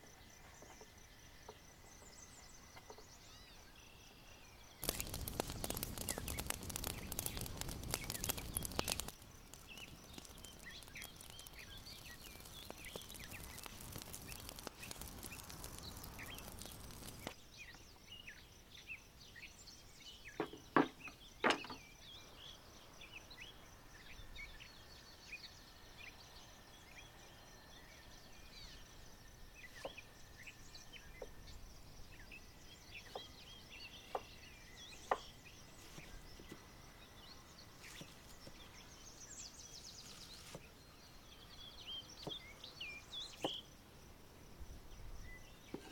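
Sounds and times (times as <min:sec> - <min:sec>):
small birds chirping: 0:00.0 - 0:43.8
dense crackling noise: 0:04.8 - 0:17.4.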